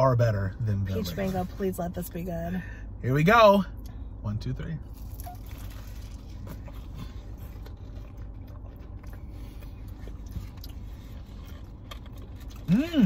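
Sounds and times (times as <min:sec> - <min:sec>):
steady low hum: 0:00.0 - 0:13.0
people chewing pastry: 0:04.9 - 0:13.0.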